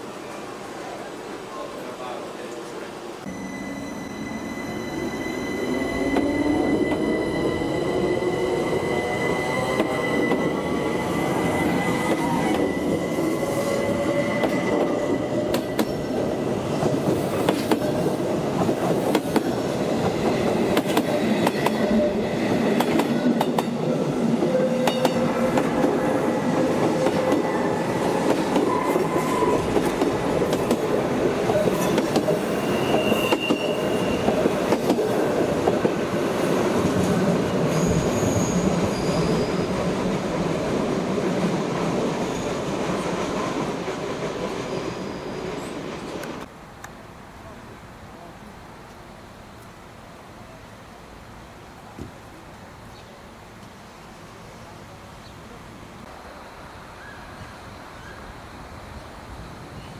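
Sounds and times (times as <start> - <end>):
train rolling noise: 0.0 - 46.5
high steady whine: 3.3 - 6.2
train wheels squealing: 3.3 - 16.2, 31.6 - 34.6, 37.6 - 39.8, 44.6 - 45.8.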